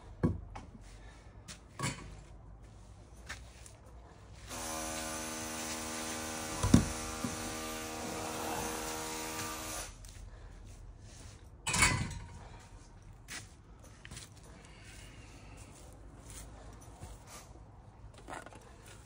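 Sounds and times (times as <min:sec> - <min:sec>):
power tool motor running: 0:04.5 - 0:10.0.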